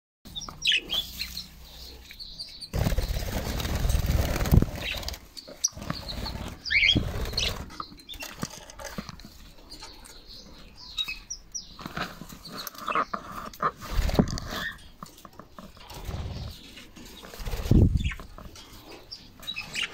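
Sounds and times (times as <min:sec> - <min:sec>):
budgerigars chirping: 0:00.3 - 0:03.6, 0:04.7 - 0:08.3
loud rustling: 0:02.7 - 0:09.1.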